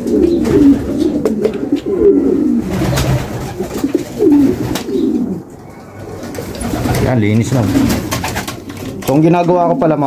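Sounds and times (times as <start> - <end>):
pigeons cooing: 0.0 - 9.0.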